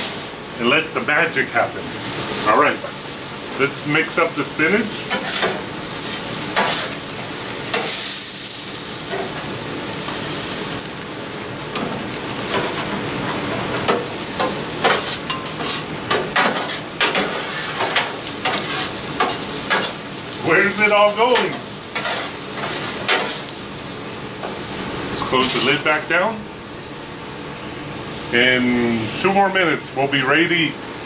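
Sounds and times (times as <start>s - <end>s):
spinach sizzling on a griddle: 1.8s - 25.2s.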